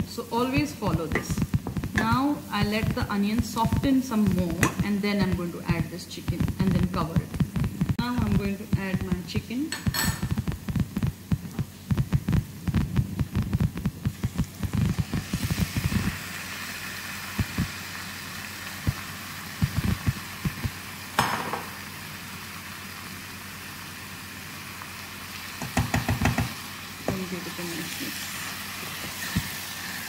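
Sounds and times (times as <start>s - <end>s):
meat sizzling in pan: 10.2s - 30.0s
food dropping into pan thumps: 21.2s - 21.8s
spoon knocking against pan: 25.6s - 27.2s.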